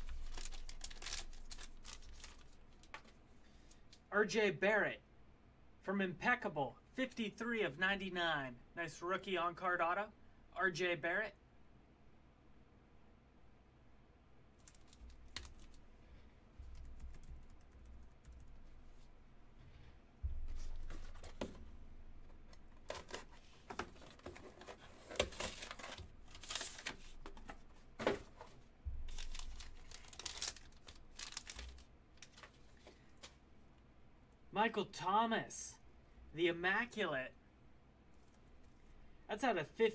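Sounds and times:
handling thumps: 0:16.6 - 0:25.5.

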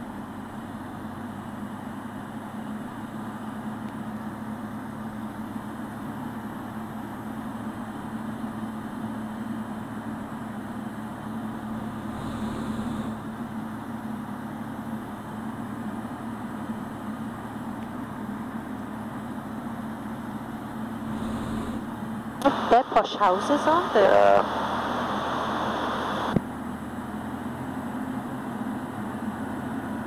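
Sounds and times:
aircraft engine and propeller droning: 0:00.0 - 0:30.0.

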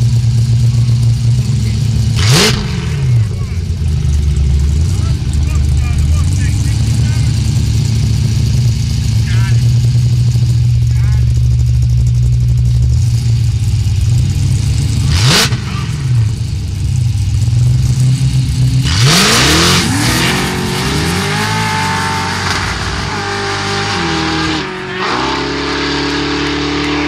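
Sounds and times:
car engines idling: 0:00.0 - 0:27.0
engine revving: 0:00.0 - 0:27.0
cars accelerating through gears: 0:02.2 - 0:03.3, 0:15.0 - 0:16.3, 0:18.8 - 0:27.0.

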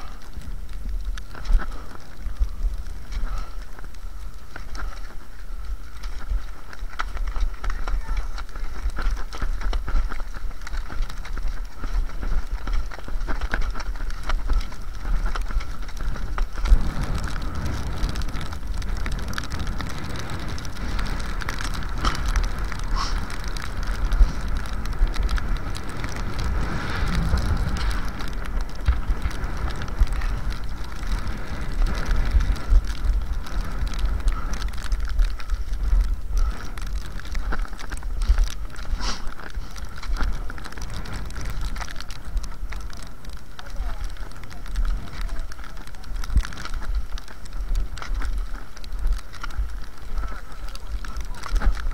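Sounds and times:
low microphone rumble: 0:00.0 - 0:51.9
skis scraping over snow: 0:00.0 - 0:51.9
ski poles clicking: 0:00.8 - 0:51.9.

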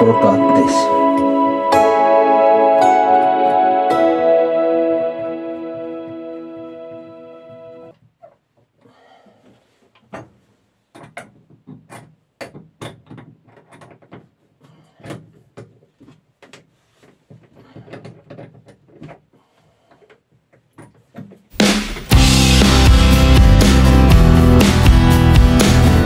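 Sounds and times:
loud music: 0:00.0 - 0:07.8, 0:21.6 - 0:26.0.

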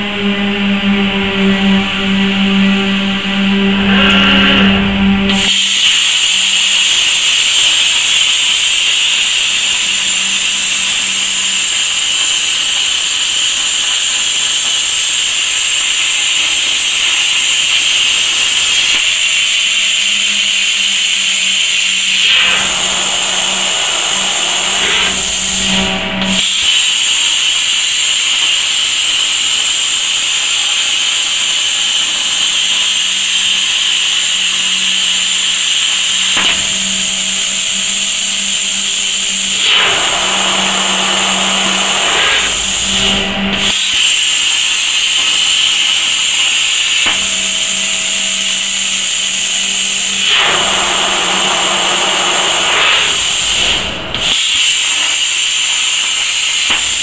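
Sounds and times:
low hum: 0:00.1 - 0:05.8
plasma cutting torch hissing: 0:03.3 - 0:57.0.

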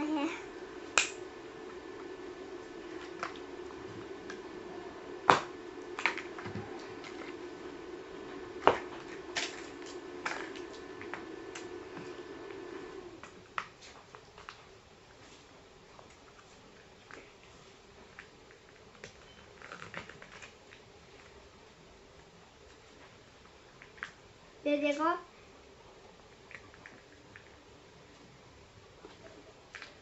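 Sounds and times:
steady low hum: 0:00.0 - 0:19.6
sharp clicks and snaps: 0:00.9 - 0:01.2
plastic wrappers crinkling: 0:16.2 - 0:21.4.

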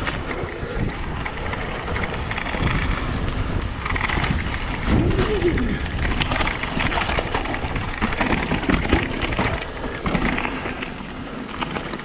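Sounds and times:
bike tyres crunching over gravel: 0:00.0 - 0:12.0.

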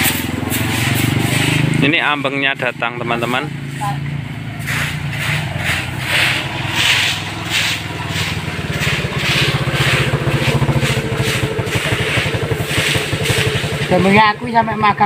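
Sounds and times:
motorbike engine puttering: 0:00.0 - 0:15.0
rustling hiss: 0:03.6 - 0:13.9.

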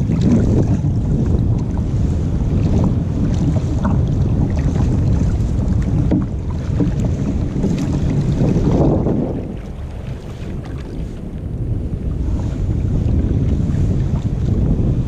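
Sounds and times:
paddle splashing in water: 0:00.0 - 0:11.4
wind rumbling on microphone: 0:00.0 - 0:15.0.

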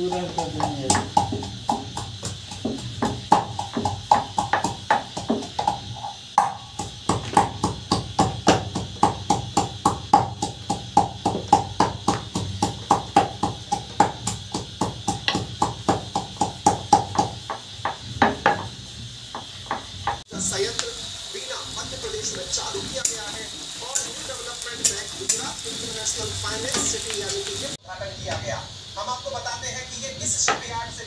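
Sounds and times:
rolling pin knocking on wooden board: 0:00.2 - 0:18.7.

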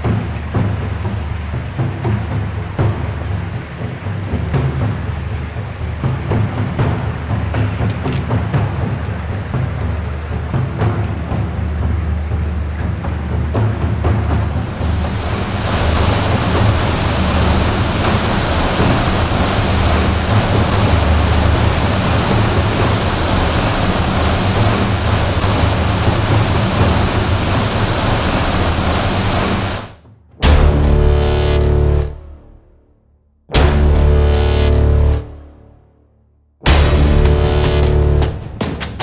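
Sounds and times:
water noise: 0:00.0 - 0:32.2, 0:36.7 - 0:38.5
wind: 0:00.0 - 0:32.6, 0:36.7 - 0:39.0
low drone: 0:08.8 - 0:32.6, 0:33.6 - 0:35.7, 0:36.7 - 0:38.4.

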